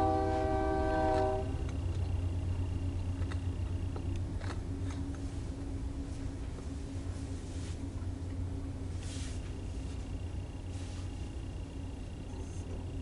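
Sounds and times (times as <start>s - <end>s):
locomotive air horn chord: 0.0s - 1.6s.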